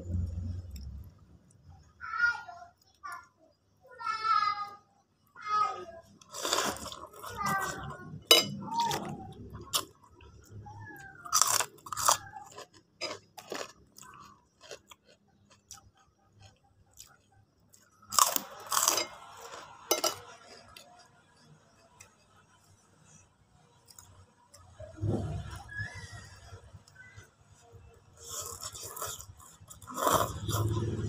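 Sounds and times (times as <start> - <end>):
crunching cracker: 6.0 - 22.8, 28.2 - 31.0
chewing and slurping noodles: 6.2 - 21.0, 26.9 - 31.0.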